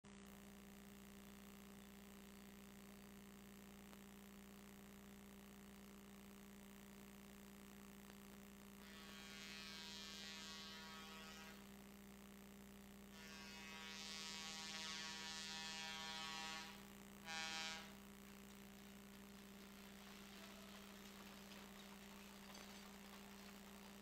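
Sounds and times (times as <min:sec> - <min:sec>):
electrical hum: 0:00.1 - 0:24.0
locomotive horn blasts: 0:13.2 - 0:18.0.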